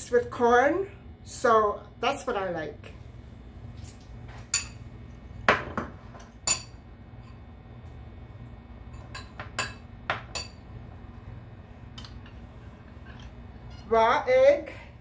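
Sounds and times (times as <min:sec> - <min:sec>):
glass kitchenware clinking: 0:06.5 - 0:06.8, 0:09.0 - 0:10.6.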